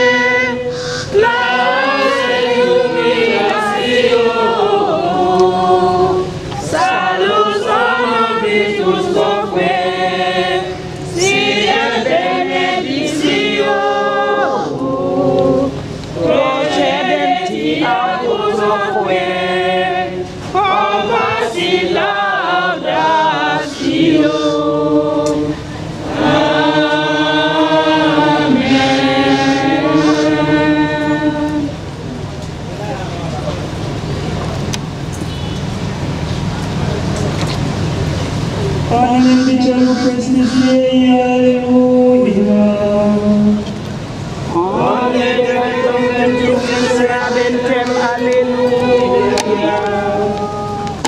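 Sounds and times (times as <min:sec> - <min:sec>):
choir and congregation singing: 0:00.0 - 0:31.9, 0:38.9 - 0:51.0.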